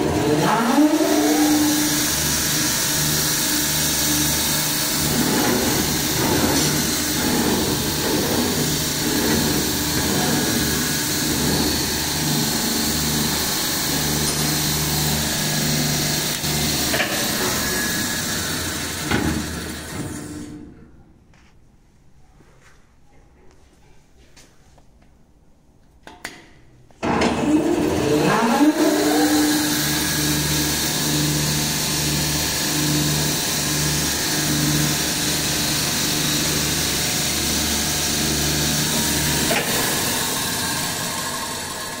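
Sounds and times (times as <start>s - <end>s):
band saw motor whining: 0.0s - 20.4s, 27.2s - 42.0s.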